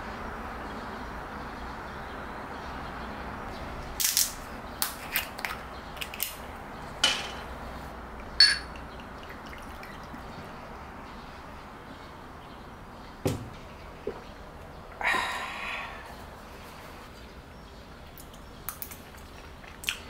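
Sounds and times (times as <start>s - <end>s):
glass clinking on glass: 8.4s - 9.0s
liquid pouring into glass: 8.4s - 10.3s.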